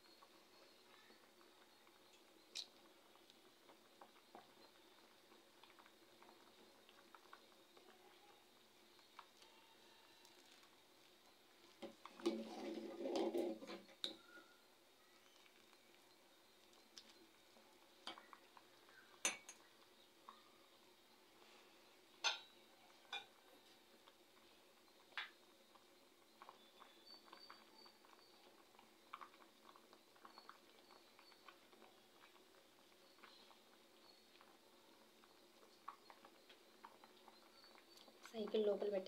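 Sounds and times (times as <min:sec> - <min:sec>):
boiling water ticks and pops: 0:00.0 - 0:39.0
metal spoon clinking against pot: 0:19.2 - 0:19.6, 0:22.2 - 0:22.5.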